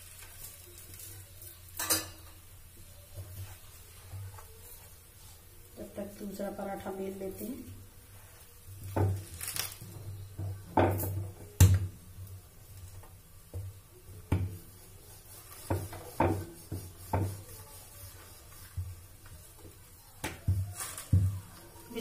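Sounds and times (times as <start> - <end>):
rolling pin rolling dough: 7.6 - 22.0
rolling pin knocking on board: 15.7 - 17.4.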